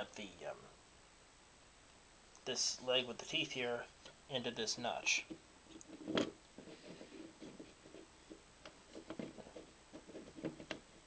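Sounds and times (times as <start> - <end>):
wood scraping on wood: 5.9 - 10.8.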